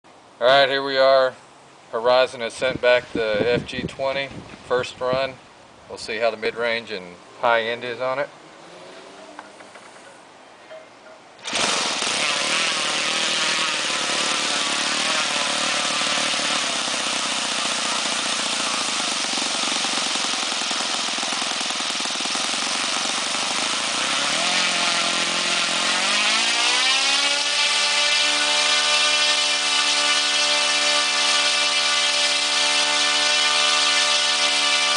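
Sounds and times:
model aircraft engine running: 0:11.4 - 0:34.9.

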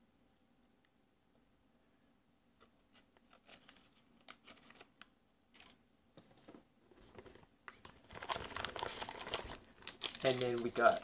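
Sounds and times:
plastic packaging crinkling: 0:07.1 - 0:11.0.

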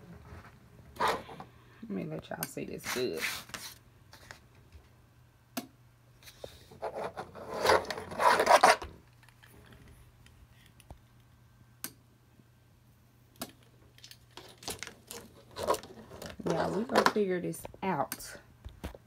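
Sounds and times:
low steady hum: 0:00.0 - 0:19.0
rough scraping and rubbing: 0:06.8 - 0:08.9.

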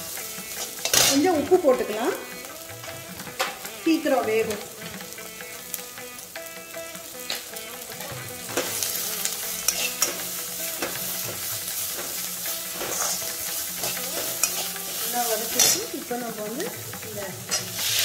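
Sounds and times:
onions sizzling in oil: 0:00.0 - 0:18.0
ladle scraping and clinking pan: 0:00.5 - 0:01.4, 0:08.4 - 0:16.0.

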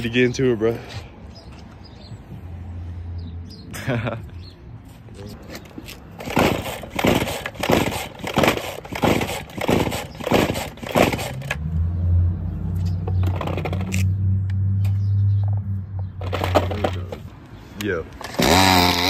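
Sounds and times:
rasping recoil-cord pulls: 0:06.2 - 0:11.6, 0:18.2 - 0:19.0
string trimmer engine running: 0:06.2 - 0:11.6, 0:18.3 - 0:19.0.

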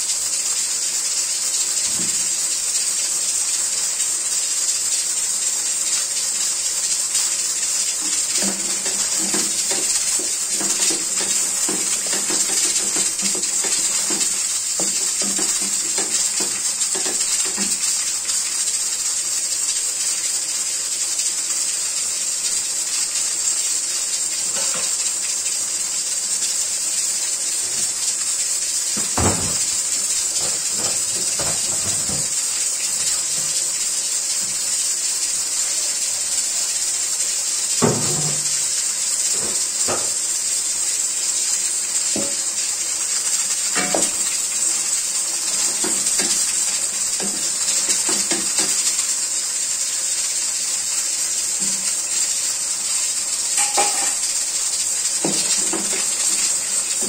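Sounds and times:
food sizzling in pan: 0:00.0 - 0:57.0
spatula scraping pan: 0:08.0 - 0:17.8.

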